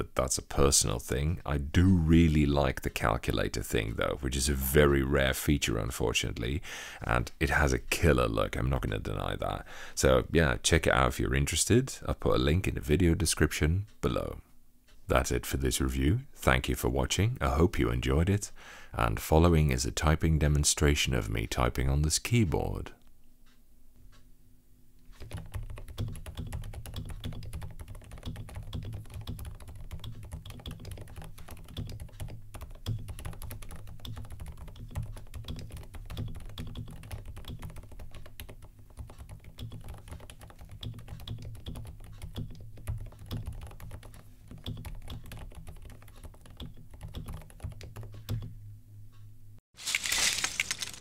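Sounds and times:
mechanical keyboard typing: 25.2 - 48.4.

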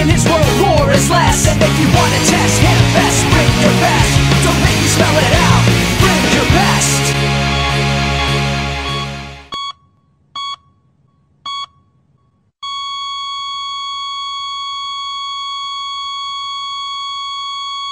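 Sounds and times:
rock music: 0.0 - 9.5
heart monitor beeps: 8.9 - 10.8, 11.5 - 11.9, 12.6 - 17.9.

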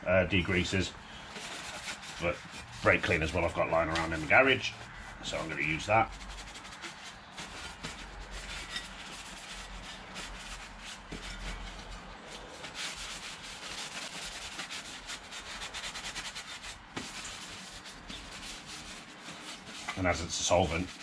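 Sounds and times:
paper wipe scratching metal: 1.3 - 21.0.

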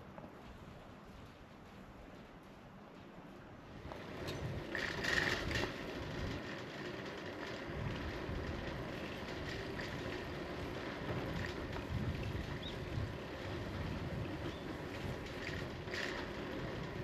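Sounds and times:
tyres rolling on asphalt: 0.1 - 17.0
wind buffeting microphone: 3.6 - 17.0.

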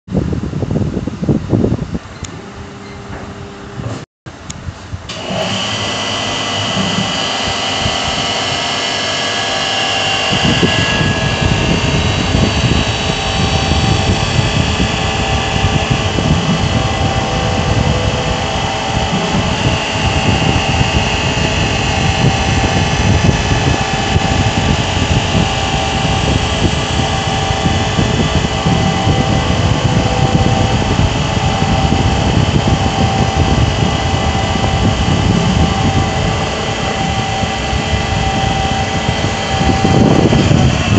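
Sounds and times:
mill cutting metal tube: 5.1 - 40.9
spindle motor whining: 5.1 - 40.9.

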